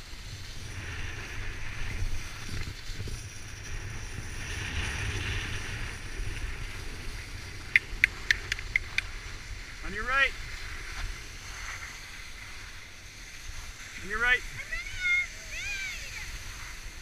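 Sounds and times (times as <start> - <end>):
skis scraping over snow: 0.0 - 17.0
wind rumbling on microphone: 0.0 - 17.0
sharp clicks: 7.7 - 9.1.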